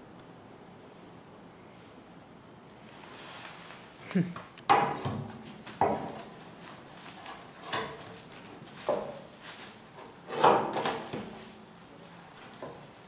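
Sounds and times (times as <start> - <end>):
bathtub knocking and scraping on wood: 10.3 - 11.4.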